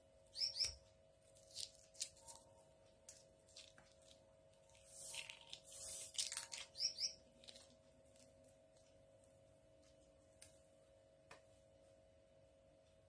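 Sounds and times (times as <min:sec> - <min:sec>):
faint steady hum: 0:00.0 - 0:13.0
fruit pith tearing and rustling: 0:01.2 - 0:08.5.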